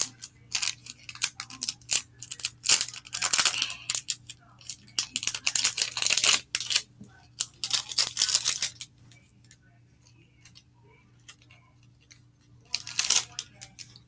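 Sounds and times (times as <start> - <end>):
plastic wrapping crinkling: 0.0 - 6.8, 7.4 - 9.2, 12.0 - 14.0
faint low hum: 0.0 - 14.0.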